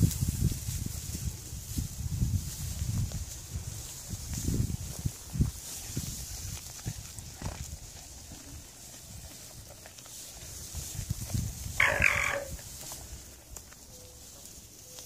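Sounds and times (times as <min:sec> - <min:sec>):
hay rustling and knocking: 0:00.0 - 0:15.0
alpaca calling: 0:11.6 - 0:13.2.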